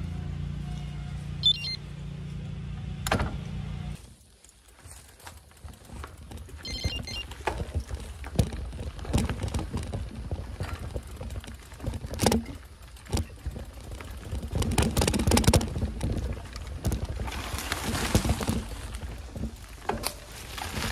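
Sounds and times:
mountain bike rattling and knocking: 4.0 - 20.9
wind rumbling on microphone: 5.8 - 20.9.

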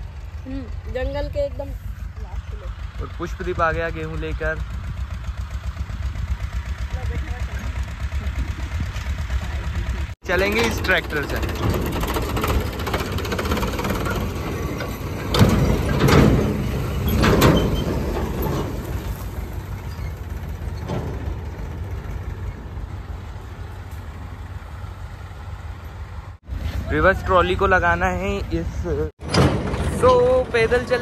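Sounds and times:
tractor engine running: 0.0 - 31.0.

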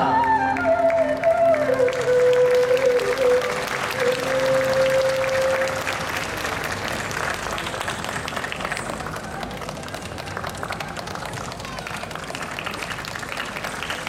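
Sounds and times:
music holding a long note: 0.0 - 8.8
audience applauding: 0.0 - 14.0.

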